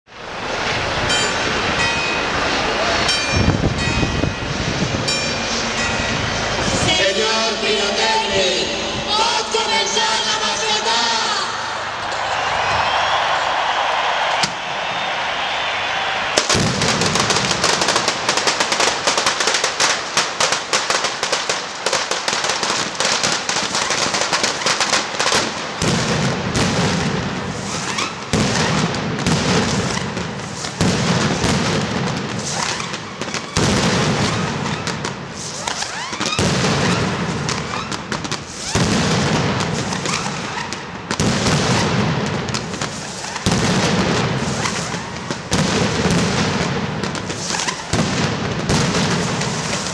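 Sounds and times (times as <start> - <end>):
firecrackers crackling: 0.1 - 49.9
heavy deep bangs: 0.2 - 7.7, 16.3 - 20.4, 36.3 - 47.2.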